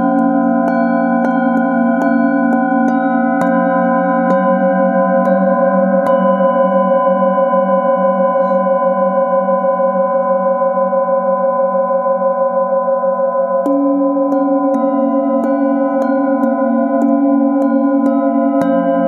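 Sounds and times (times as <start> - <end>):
bowl struck with mallet: 0.0 - 8.5, 13.5 - 19.0
singing bowls ringing: 0.0 - 19.0.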